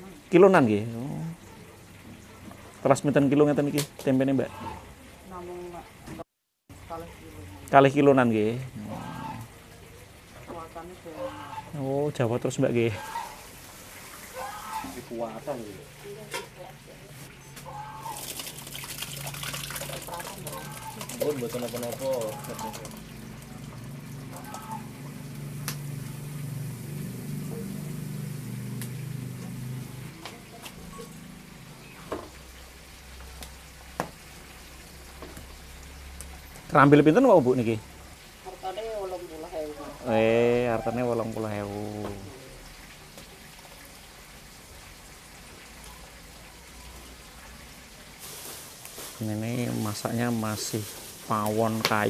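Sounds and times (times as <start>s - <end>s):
low motor hum: 22.0s - 32.5s.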